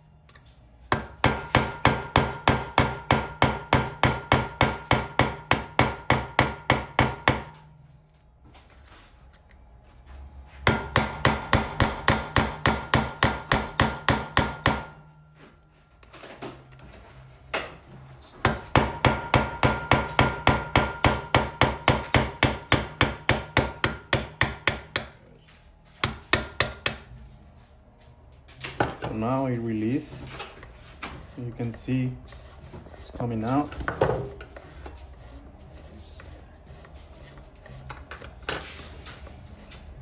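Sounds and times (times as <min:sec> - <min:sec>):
hammer tapping metal punch: 0:00.3 - 0:07.7, 0:10.6 - 0:15.2, 0:18.4 - 0:25.2, 0:26.0 - 0:27.2.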